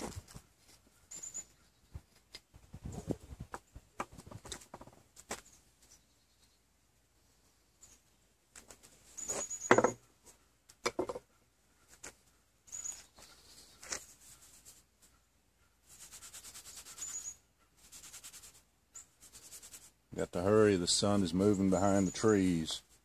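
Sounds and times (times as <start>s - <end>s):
metal bottle knocking: 9.7s - 10.0s, 10.8s - 11.3s
hands rubbing cloth: 12.9s - 15.1s, 15.8s - 20.0s.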